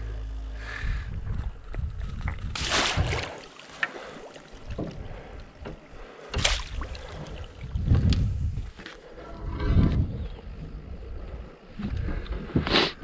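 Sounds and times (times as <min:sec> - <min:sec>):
low rumble: 0:00.0 - 0:03.5, 0:04.6 - 0:12.7
net splashing through water: 0:02.6 - 0:04.6, 0:06.3 - 0:07.5.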